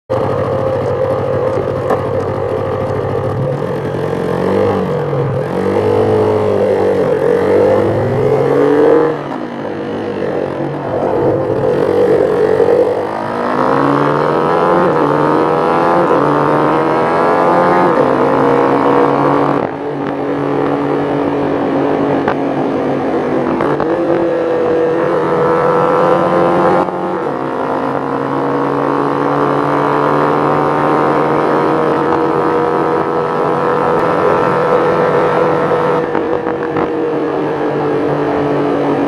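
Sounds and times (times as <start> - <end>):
motorcycle engine accelerating: 0.1 - 39.0.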